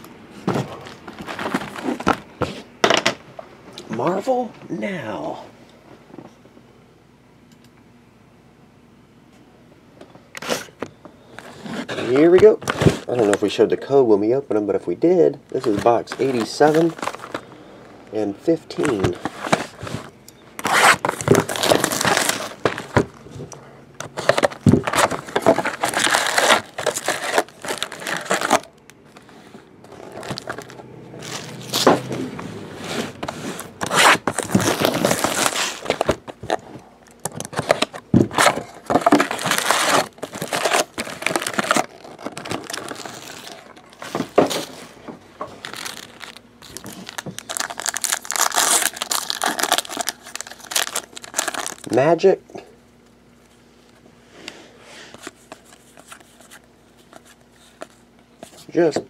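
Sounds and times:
foil packs crinkling: 0.7s - 2.3s, 15.4s - 32.1s, 33.1s - 52.2s
wrapper tearing: 20.6s - 23.0s, 24.2s - 29.2s, 30.0s - 31.9s, 33.6s - 44.6s, 45.6s - 52.0s.

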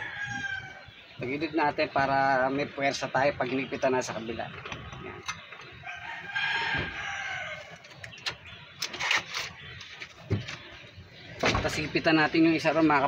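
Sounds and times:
rooster crowing: 0.0s - 0.8s, 5.8s - 7.8s.

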